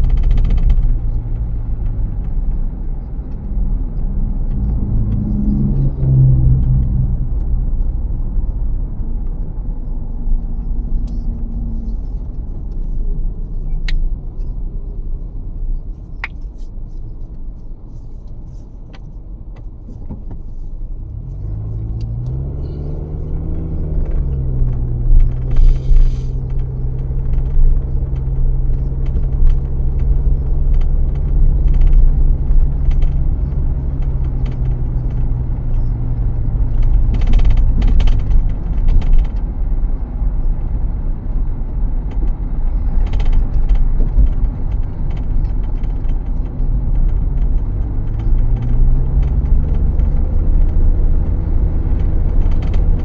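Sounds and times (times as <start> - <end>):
low hum: 0.0 - 17.7
car road rumble: 0.0 - 53.0.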